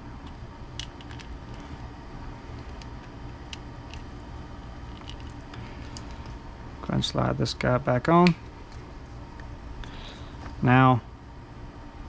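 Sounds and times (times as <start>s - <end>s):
steady low hum: 0.0s - 12.0s
plastic parts clicking: 0.2s - 1.7s.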